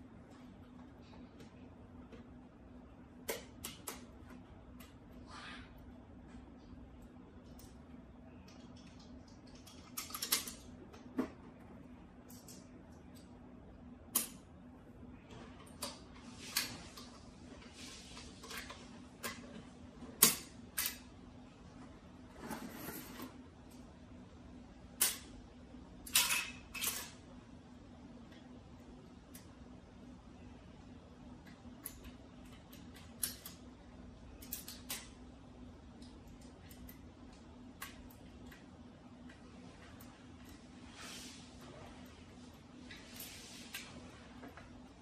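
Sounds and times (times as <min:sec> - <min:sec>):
faint steady hum: 0:00.0 - 0:45.0
metal parts clicking and tapping: 0:08.5 - 0:10.7, 0:26.0 - 0:27.2.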